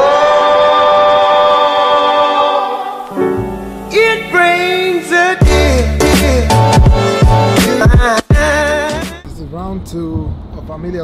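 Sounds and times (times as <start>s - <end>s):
person singing: 0.0s - 9.3s
bass beat: 5.4s - 9.3s.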